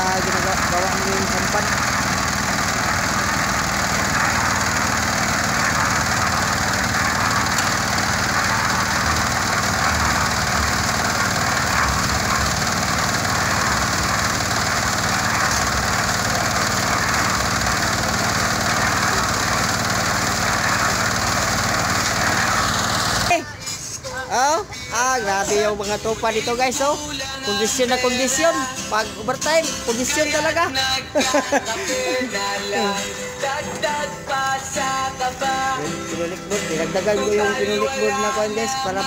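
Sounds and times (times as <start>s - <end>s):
drum churning wet concrete: 0.0s - 23.4s
concrete mixer engine running: 0.0s - 24.0s, 25.2s - 39.0s.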